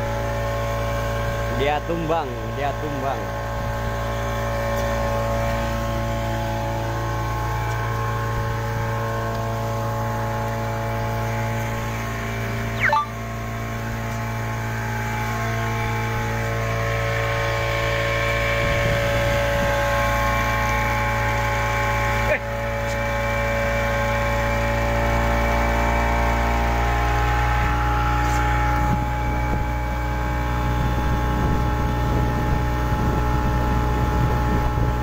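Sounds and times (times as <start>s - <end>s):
outboard motor running: 0.0s - 35.0s
brief sharp sound: 12.8s - 13.2s.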